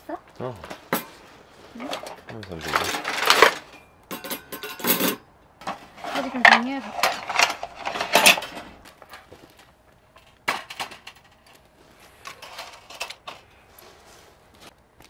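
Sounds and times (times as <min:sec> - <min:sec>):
dishes clinking in wire basket: 0:01.8 - 0:08.7.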